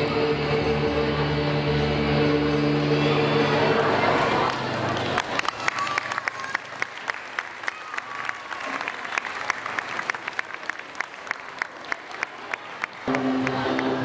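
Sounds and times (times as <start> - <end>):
audience applause: 3.8 - 14.0.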